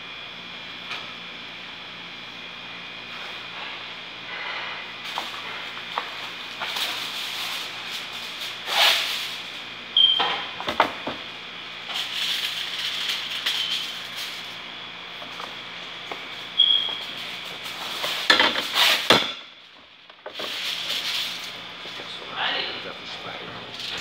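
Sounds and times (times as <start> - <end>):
steady kitchen hiss: 0.0 - 24.0.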